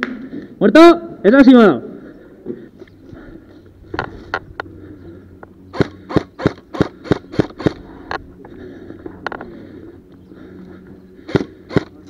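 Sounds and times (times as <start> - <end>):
airsoft gun shots: 5.7 - 7.8, 11.3 - 12.0.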